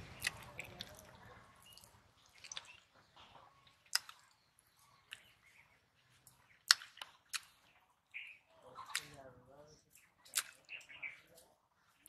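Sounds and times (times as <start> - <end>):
person chewing with lip smacks: 0.2 - 4.4, 5.0 - 5.3, 6.2 - 7.8, 10.2 - 10.8.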